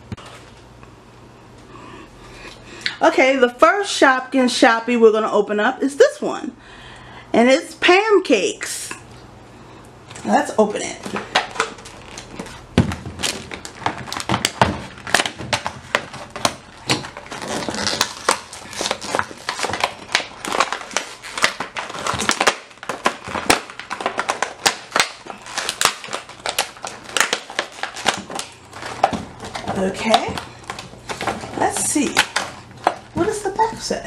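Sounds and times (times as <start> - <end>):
plastic packaging crackling: 10.0 - 34.0.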